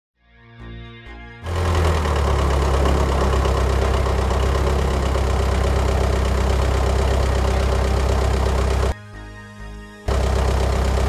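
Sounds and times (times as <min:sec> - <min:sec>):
forklift engine running: 0:01.4 - 0:09.0, 0:10.1 - 0:11.0.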